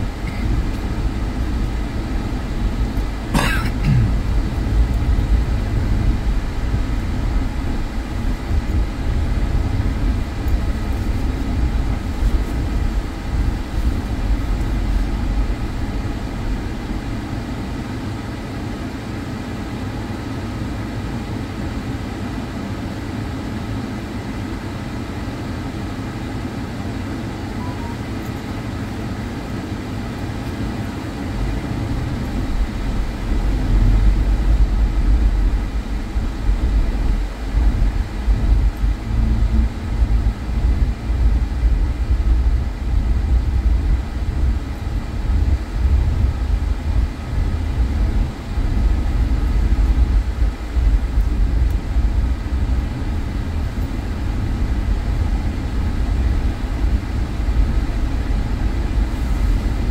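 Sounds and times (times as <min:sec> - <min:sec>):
uneven low rumble: 0:00.0 - 0:17.3, 0:31.4 - 0:59.9
car engine and tyres on road: 0:00.0 - 0:59.9.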